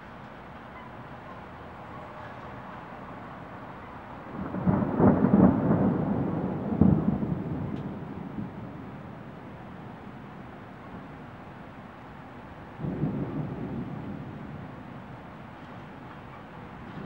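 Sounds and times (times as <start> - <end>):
thunder rolling: 4.3 - 9.3, 12.8 - 17.0.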